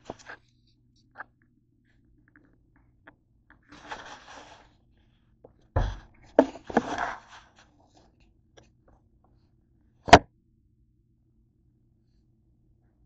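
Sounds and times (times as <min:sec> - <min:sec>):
scraping on table: 0:03.7 - 0:04.8, 0:05.8 - 0:07.7.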